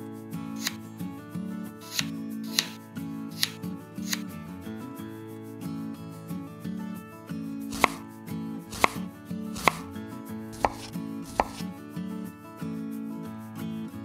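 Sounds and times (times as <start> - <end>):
knife knocking on cutting board: 7.7 - 8.0, 8.7 - 9.0, 9.6 - 9.8, 10.6 - 11.7.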